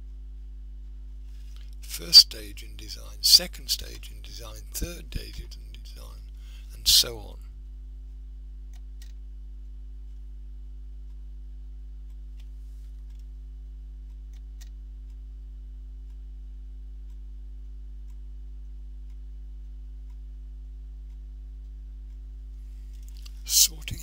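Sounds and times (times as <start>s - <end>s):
faint irregular clicks: 0.0s - 24.0s
steady low hum: 0.0s - 24.0s.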